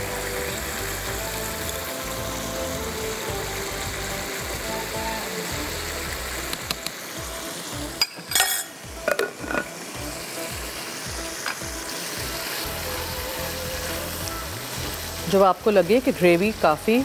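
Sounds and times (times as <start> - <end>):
boiling water: 0.0 - 17.0
sizzling wok: 0.0 - 17.0
glass pot lid clattering: 8.0 - 9.7.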